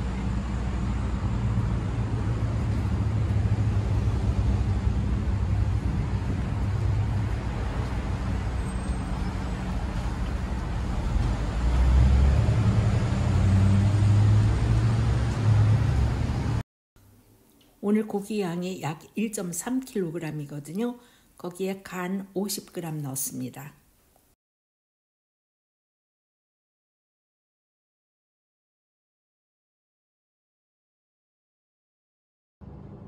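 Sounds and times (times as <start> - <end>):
cars passing: 0.0 - 16.6.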